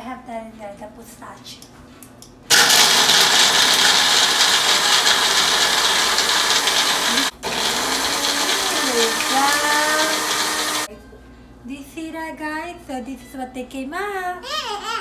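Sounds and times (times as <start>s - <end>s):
blender grinding nuts: 2.5s - 10.9s.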